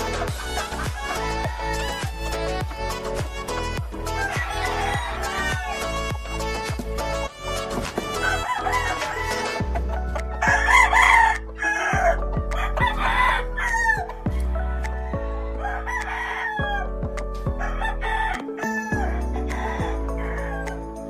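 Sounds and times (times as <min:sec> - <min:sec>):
background music: 0:00.0 - 0:21.0
rooster crowing: 0:04.1 - 0:06.2, 0:08.1 - 0:09.6, 0:10.4 - 0:14.2, 0:14.9 - 0:16.9, 0:17.6 - 0:20.8.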